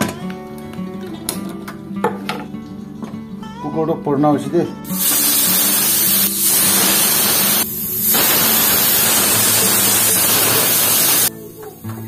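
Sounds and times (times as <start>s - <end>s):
pressure cooker steam hiss: 4.9s - 12.0s.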